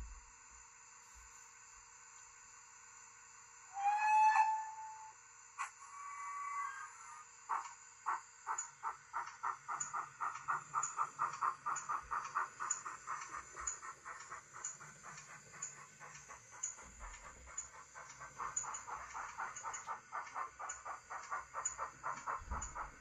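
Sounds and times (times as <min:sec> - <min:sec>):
model steam locomotive chuffing: 0:03.8 - 0:23.0
light ticking: 0:08.5 - 0:23.0.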